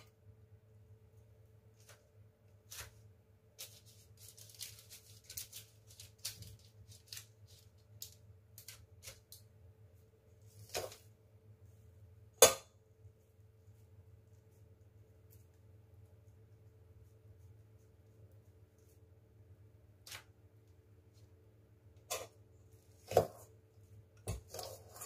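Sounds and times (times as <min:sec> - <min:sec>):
faint steady hum: 0:00.0 - 0:25.0
paper crinkling: 0:01.8 - 0:09.4.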